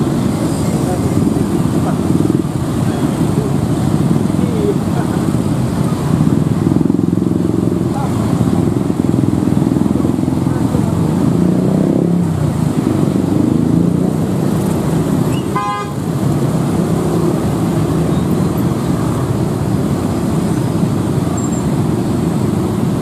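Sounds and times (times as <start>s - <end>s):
motorcycle and car engines: 0.0s - 23.0s
horn beep: 15.3s - 16.0s.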